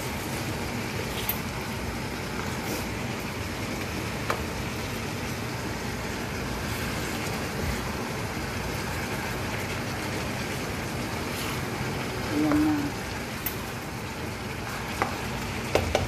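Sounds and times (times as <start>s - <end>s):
vegetables sizzling in a frying pan: 0.0s - 16.0s
spatula tapping on pan: 4.2s - 4.5s, 15.0s - 16.0s.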